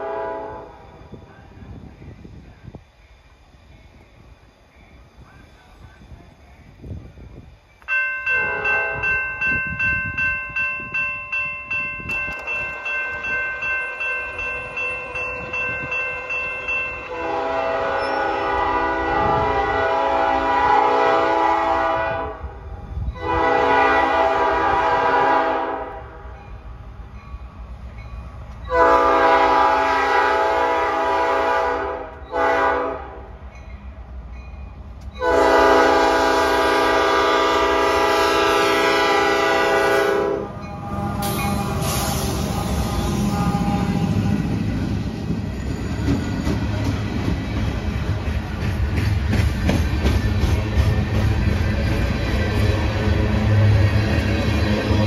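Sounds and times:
locomotive air horn blasts: 0.0s - 0.8s, 8.3s - 9.2s, 17.1s - 22.6s, 23.2s - 26.2s, 28.7s - 33.3s, 35.2s - 44.7s
crossing warning bell ringing: 7.8s - 20.6s, 26.2s - 30.0s, 33.4s - 55.0s.

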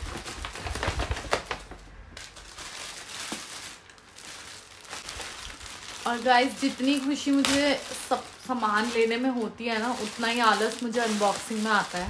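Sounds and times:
tissue paper and plastic rustling: 0.0s - 12.0s.

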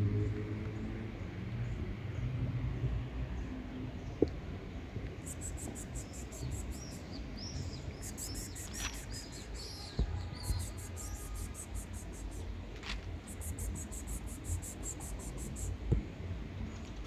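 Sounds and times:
small birds chirping: 5.2s - 12.5s, 13.2s - 15.7s
high-pitched pulsing trill: 5.3s - 6.9s, 8.0s - 9.3s, 10.4s - 12.4s, 13.3s - 15.7s.

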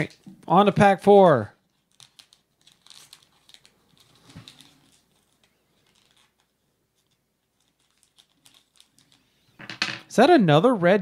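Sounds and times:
foil pack rustling: 1.7s - 9.2s.

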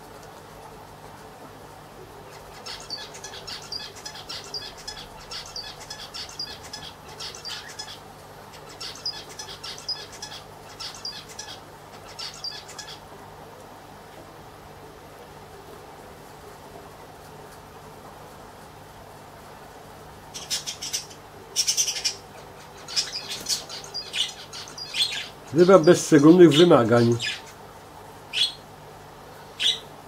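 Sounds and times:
steady low hum: 0.0s - 30.0s
small bird chirping: 2.3s - 13.0s, 20.3s - 27.6s, 28.3s - 28.7s, 29.5s - 29.9s.

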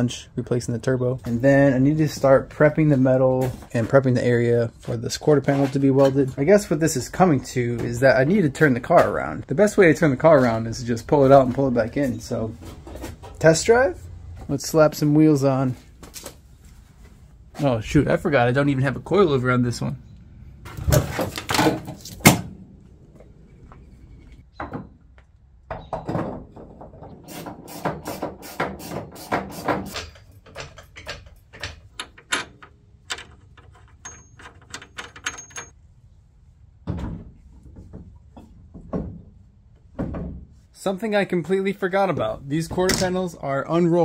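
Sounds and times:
metal clinks and knocks: 29.9s - 35.8s.

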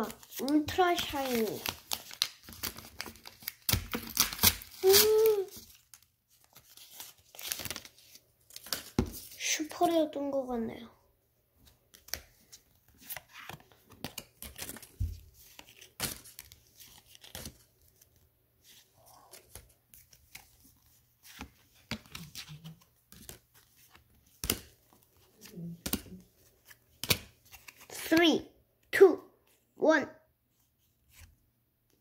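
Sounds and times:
paper wrapper tearing: 0.0s - 8.9s
cards rustling and snapping: 0.0s - 9.4s, 11.6s - 28.3s.

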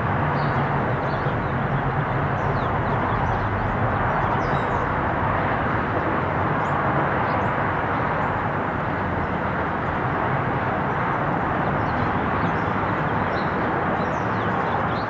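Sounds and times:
jet engines rushing: 0.0s - 15.0s.

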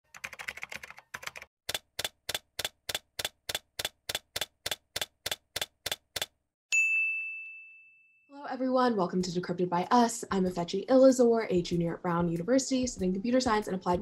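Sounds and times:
keyboard keystrokes: 0.1s - 6.3s.

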